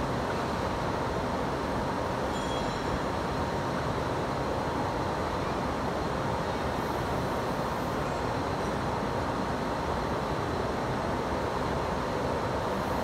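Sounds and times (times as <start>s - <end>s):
machinery rumble and hiss: 0.0s - 13.0s
faint high whine: 2.2s - 3.2s.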